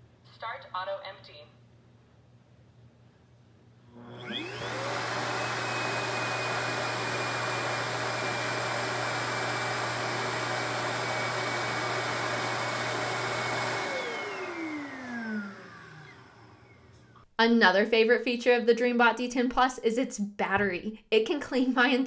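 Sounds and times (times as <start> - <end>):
suction motor whining: 4.0 - 17.1.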